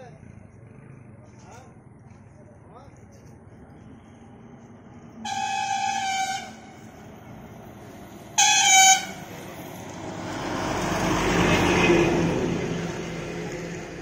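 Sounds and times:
bus driving past: 0.0s - 14.0s
vehicle horn blasts: 5.2s - 6.8s, 8.4s - 9.2s.

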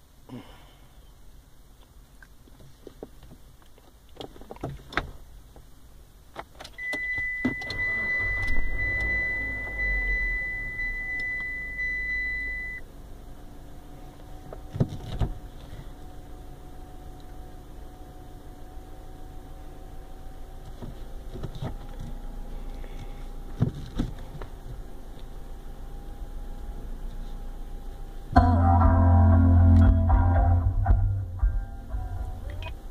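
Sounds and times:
car engine starting: 6.4s - 32.9s
steady high beep: 6.8s - 12.8s.

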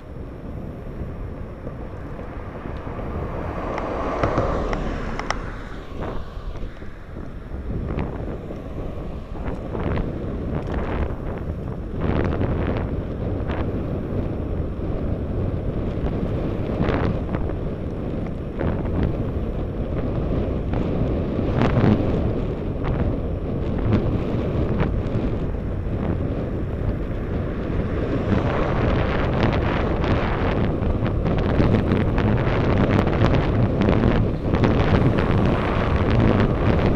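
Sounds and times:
wind buffeting microphone: 0.0s - 36.9s.

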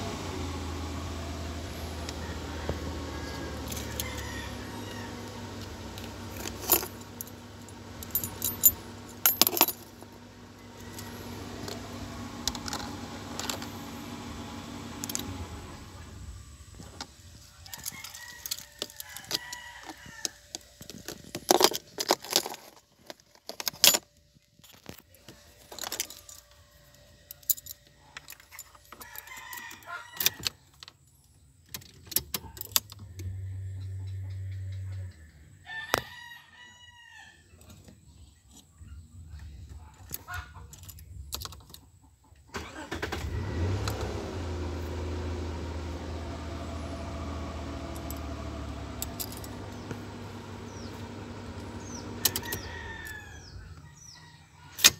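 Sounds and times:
car engine idling: 0.0s - 18.6s, 42.6s - 54.1s
rooster crowing: 0.9s - 6.3s, 10.5s - 12.0s, 17.5s - 20.5s, 29.0s - 30.6s, 34.3s - 37.6s, 51.8s - 54.9s
keys jangling and clicking: 6.3s - 10.0s, 17.6s - 24.9s, 25.6s - 26.6s, 27.3s - 30.9s, 31.6s - 33.2s, 49.0s - 49.6s.

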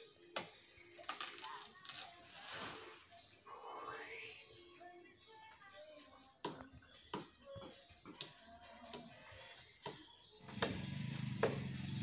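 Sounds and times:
blade chopping wood: 10.5s - 11.8s.

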